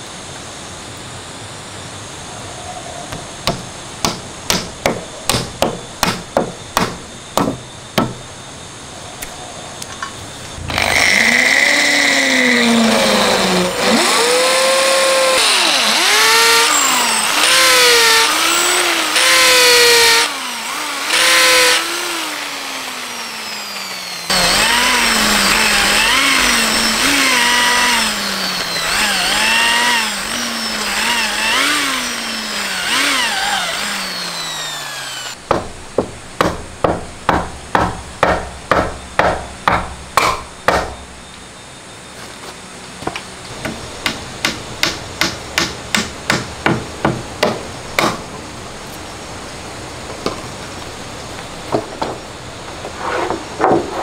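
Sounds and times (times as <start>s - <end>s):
cordless drill whining into wood: 10.6s - 35.4s
hammer tapping wooden peg: 35.5s - 41.0s.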